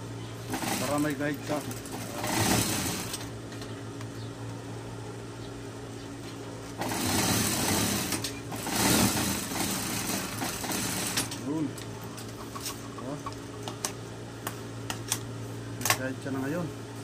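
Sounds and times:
sewing machine stitching: 0:00.5 - 0:03.3, 0:06.8 - 0:11.3.

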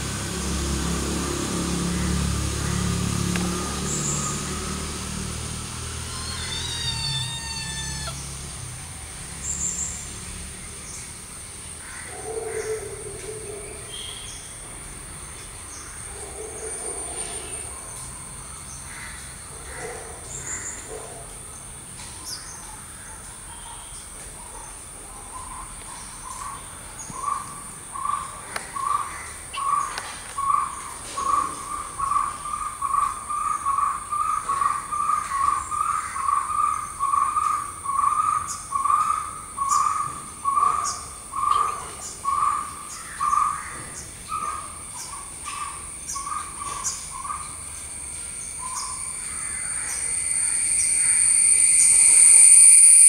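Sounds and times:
insect drone: 0:00.0 - 0:12.2, 0:26.2 - 0:53.0
bird calling in even notes: 0:05.8 - 0:08.3
bird calls: 0:05.8 - 0:08.4, 0:23.5 - 0:53.0.

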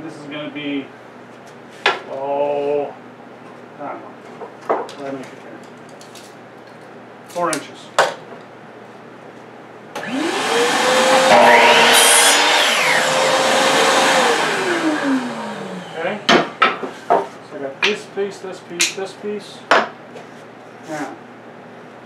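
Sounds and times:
saw winding down whine: 0:10.0 - 0:16.3
miter saw cutting wood: 0:10.0 - 0:16.4.

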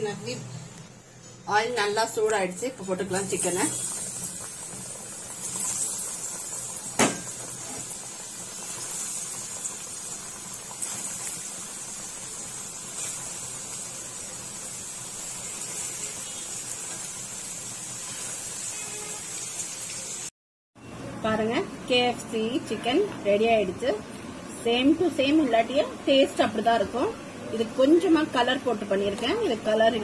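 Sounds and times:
chicken deep-frying in oil: 0:02.2 - 0:20.3.

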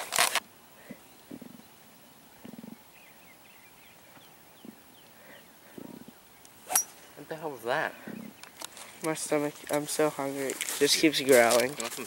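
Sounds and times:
faint bird chirps: 0:00.6 - 0:09.0
stomach growling: 0:00.8 - 0:01.7, 0:02.3 - 0:02.9, 0:05.6 - 0:06.2, 0:07.9 - 0:08.5.

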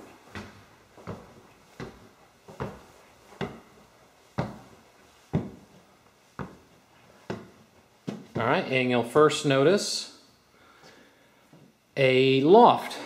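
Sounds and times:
footsteps on wooden stairs: 0:00.0 - 0:08.6.

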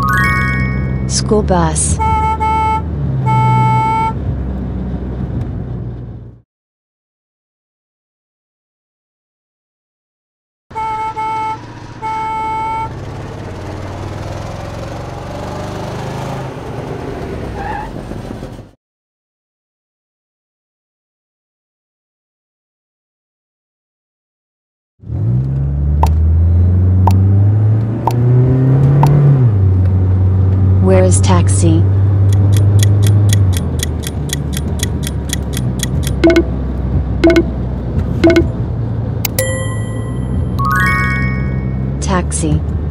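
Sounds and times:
bus horn toots: 0:01.8 - 0:04.2, 0:10.7 - 0:13.0
bus engine running: 0:10.7 - 0:18.8, 0:25.4 - 0:42.9
clock-like timer ticking: 0:32.2 - 0:36.6, 0:37.2 - 0:37.6, 0:38.2 - 0:38.5
short wrong-answer tones: 0:32.3 - 0:36.6, 0:37.2 - 0:37.6, 0:38.2 - 0:38.6, 0:39.3 - 0:42.0.

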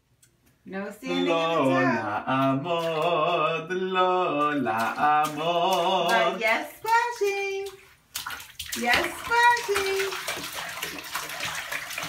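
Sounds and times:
person singing slowly: 0:01.1 - 0:06.4.

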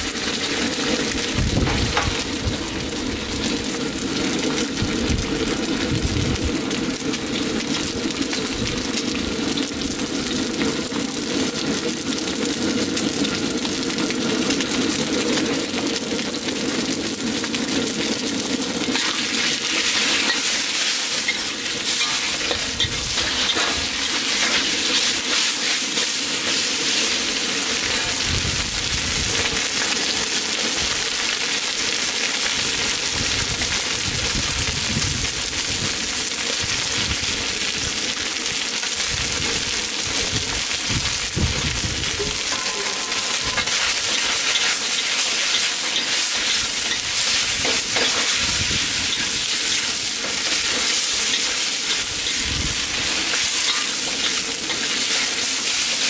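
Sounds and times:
chicken sizzling in a wok: 0:00.0 - 0:56.0
metal spatula scraping wok: 0:18.9 - 0:28.3, 0:42.0 - 0:55.3.

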